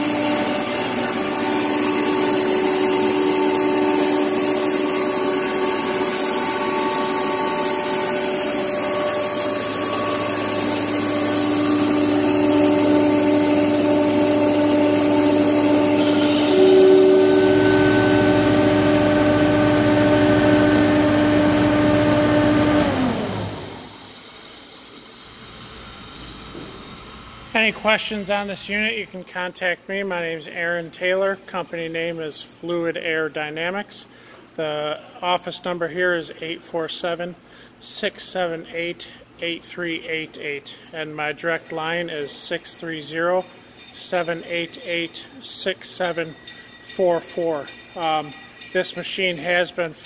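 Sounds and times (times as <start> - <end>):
motor winding down: 0.0 - 24.6
air compressor humming: 0.0 - 28.9.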